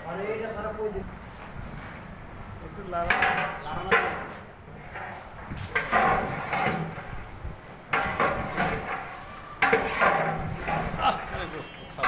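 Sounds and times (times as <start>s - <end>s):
metal ladle scraping a pot: 4.8s - 7.2s, 7.9s - 12.0s.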